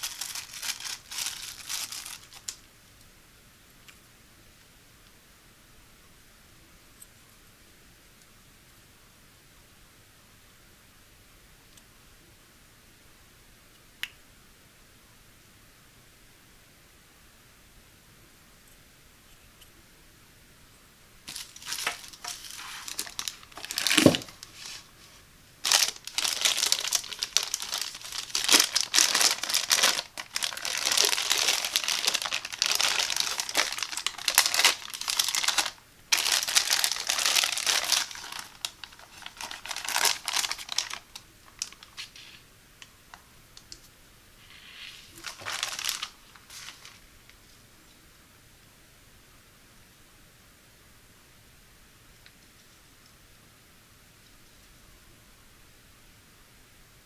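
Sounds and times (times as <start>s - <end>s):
plastic bag crinkling: 0.0s - 2.6s, 21.3s - 42.4s, 44.6s - 47.0s.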